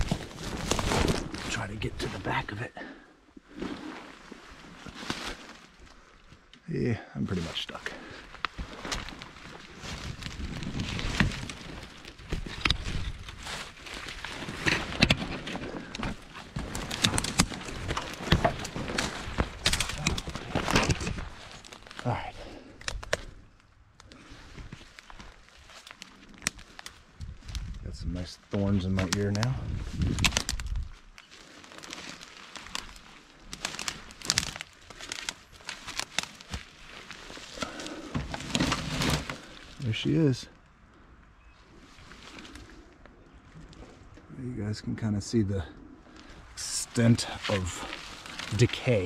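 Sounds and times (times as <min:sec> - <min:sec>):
branches rustling and snapping: 0:00.0 - 0:02.6, 0:03.4 - 0:06.6, 0:07.5 - 0:41.0, 0:41.6 - 0:44.3, 0:45.8 - 0:49.0
crunching footsteps: 0:00.0 - 0:06.4, 0:07.4 - 0:40.2, 0:46.1 - 0:49.0.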